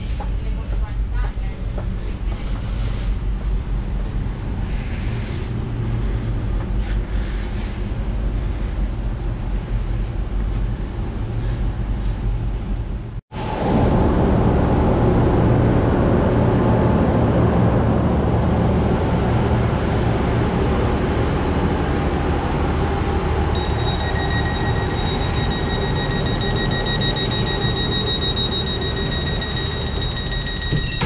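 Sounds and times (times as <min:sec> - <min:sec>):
train equipment rumble and hum: 0:00.0 - 0:31.0
high-pitched whine: 0:13.3 - 0:31.0.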